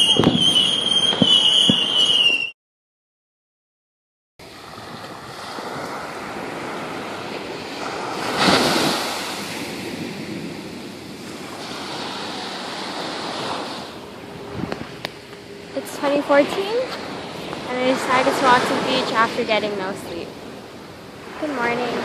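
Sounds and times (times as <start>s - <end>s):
ocean waves breaking on beach: 4.4s - 22.0s.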